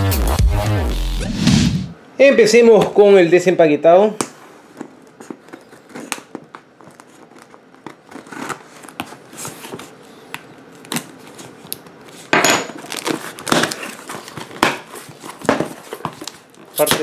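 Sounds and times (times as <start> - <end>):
tape and cardboard tearing: 7.3 - 9.8, 12.8 - 17.0
scrapes and knocks on cardboard box: 13.5 - 16.3.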